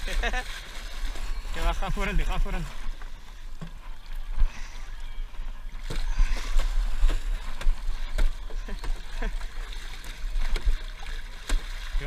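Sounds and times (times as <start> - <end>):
water sloshing against boat: 0.0 - 12.0.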